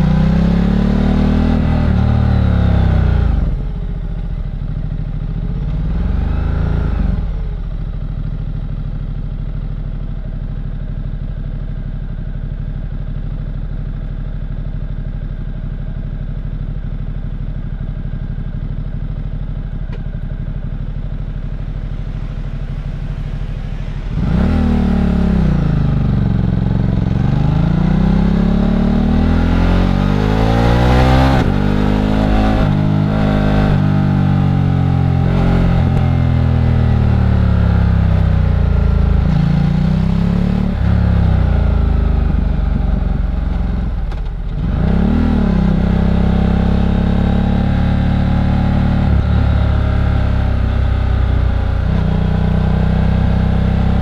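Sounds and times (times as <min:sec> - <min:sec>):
motorcycle engine revving: 0:00.0 - 0:04.0, 0:18.6 - 0:54.0.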